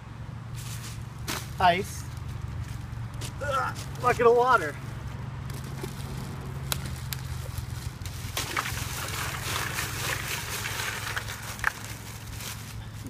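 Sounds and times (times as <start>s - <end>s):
plastic bag crinkling: 5.7s - 12.8s
ice cubes pouring into water: 8.4s - 11.7s.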